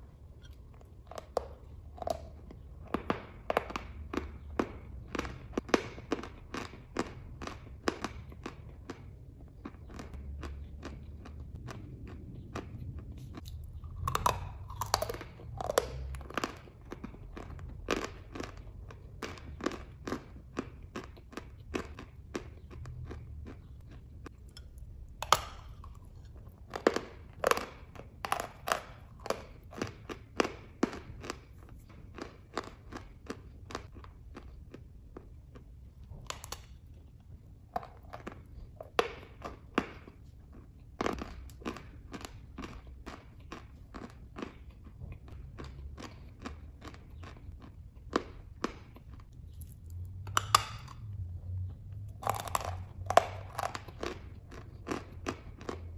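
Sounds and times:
chalk crunching when chewed: 0.0 - 55.9.

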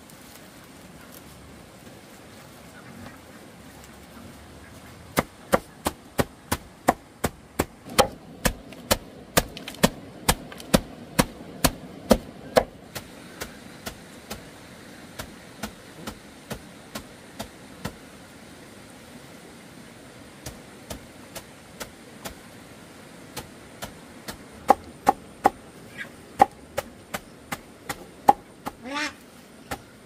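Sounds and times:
rhythmic chopping strokes: 15.1 - 18.0.

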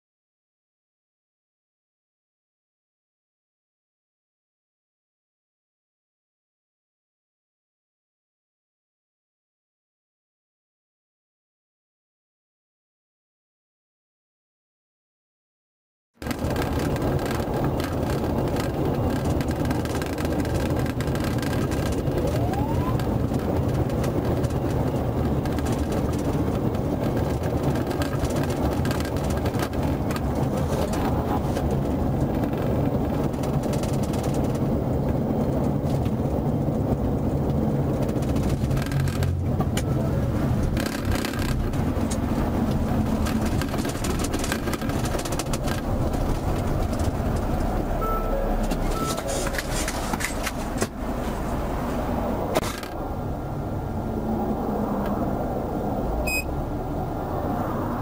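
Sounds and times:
car engine at highway speed: 16.2 - 58.0
road noise: 16.2 - 58.0.

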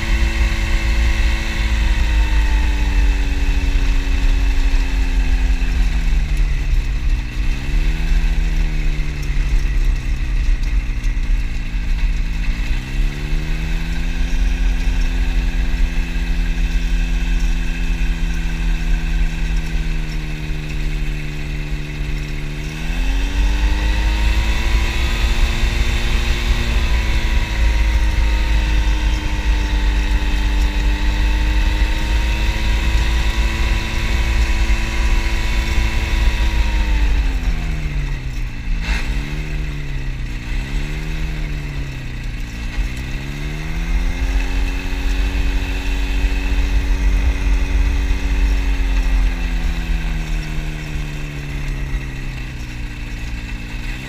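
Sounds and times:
ultralight engine and propeller: 0.0 - 54.0
low rumble: 34.2 - 53.9.

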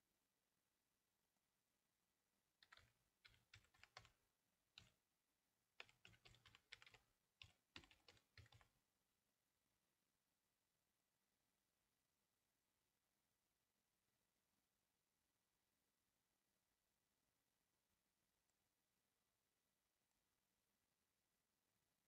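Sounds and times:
faint keyboard typing: 2.6 - 5.1, 5.8 - 8.8.

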